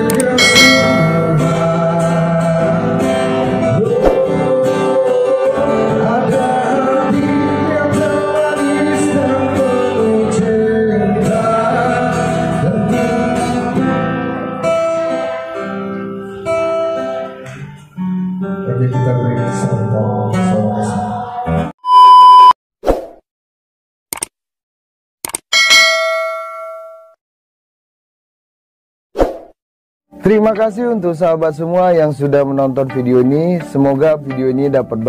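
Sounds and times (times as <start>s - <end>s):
man singing into a microphone: 0.0s - 14.8s, 18.6s - 21.7s
acoustic guitar: 0.0s - 21.7s.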